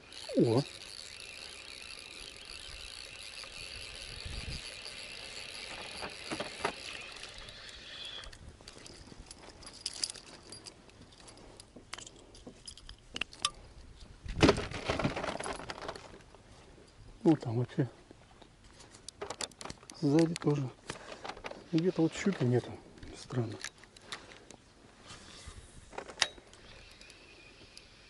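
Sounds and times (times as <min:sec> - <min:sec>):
spinning reel whirring: 0:00.0 - 0:08.4, 0:26.2 - 0:28.0
lure and line jangling: 0:00.0 - 0:13.6, 0:21.6 - 0:24.6, 0:26.1 - 0:28.0.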